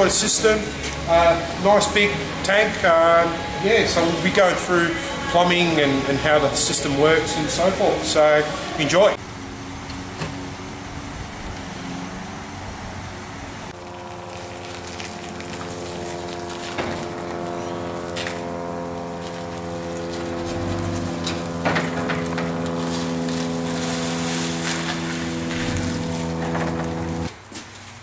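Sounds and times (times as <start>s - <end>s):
engine idling: 13.1s - 27.3s.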